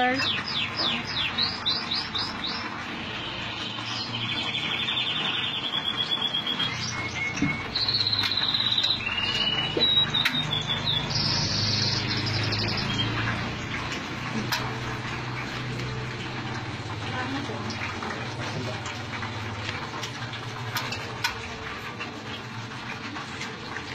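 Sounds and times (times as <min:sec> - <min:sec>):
songbird trilling and chirping: 0:03.8 - 0:13.2.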